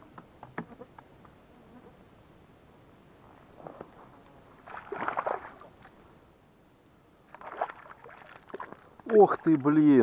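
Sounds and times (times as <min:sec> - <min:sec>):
water splashing by boat: 0:04.6 - 0:05.9, 0:07.3 - 0:09.8.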